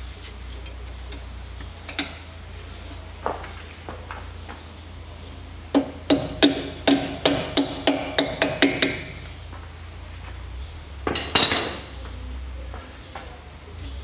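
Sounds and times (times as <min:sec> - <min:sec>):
sharp hollow knocks: 0:05.7 - 0:09.2
parts clattering: 0:11.0 - 0:12.0.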